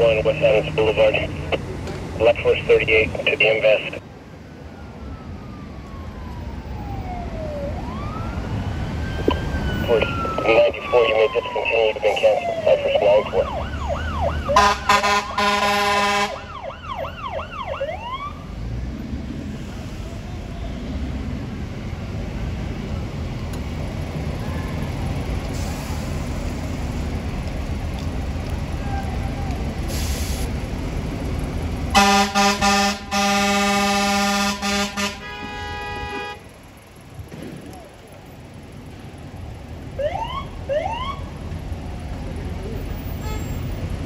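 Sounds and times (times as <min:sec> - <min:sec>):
fire engine engine rumble: 0:00.0 - 0:44.0
fire engine siren yelping: 0:02.2 - 0:18.5, 0:31.9 - 0:36.8, 0:37.6 - 0:44.0
air horn blast: 0:14.6 - 0:16.4, 0:32.0 - 0:36.4.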